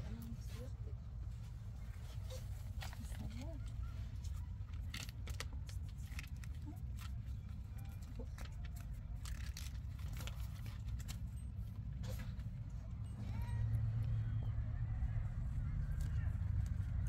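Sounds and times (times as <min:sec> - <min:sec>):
light clicks and rustles: 0:00.0 - 0:14.1.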